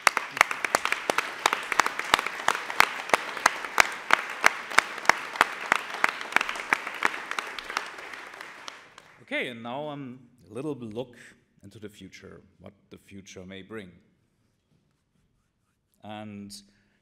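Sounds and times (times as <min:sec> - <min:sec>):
audience applause: 0:00.0 - 0:09.3.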